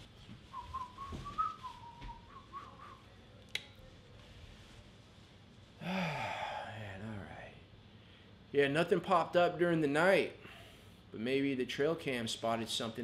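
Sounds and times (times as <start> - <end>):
man whistling a tune: 0.5 - 3.0.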